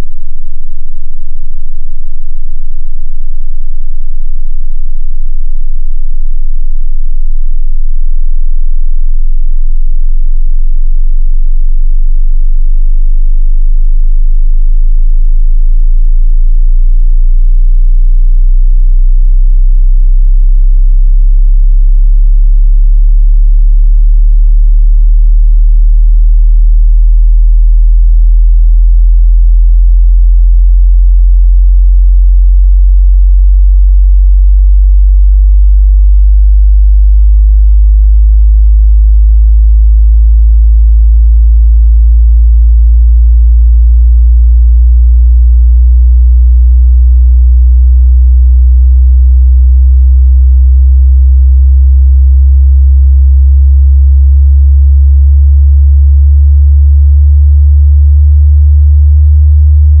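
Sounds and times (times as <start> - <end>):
deep bass tone sweeping upward: 9.2 - 47.4, 56.2 - 60.0.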